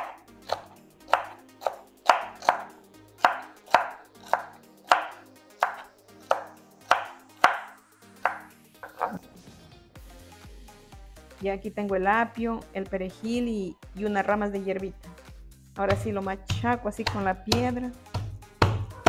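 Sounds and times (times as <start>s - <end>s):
knife chopping on wooden board: 0.0s - 9.2s, 15.9s - 19.0s.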